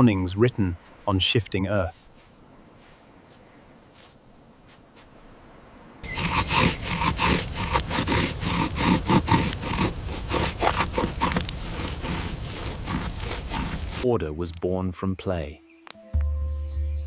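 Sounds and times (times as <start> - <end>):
stick scraping a wooden board: 6.0 - 14.1.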